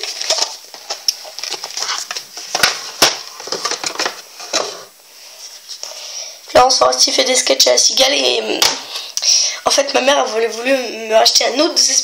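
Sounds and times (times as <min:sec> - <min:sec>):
packaging rustling and scraping: 0:00.0 - 0:05.9.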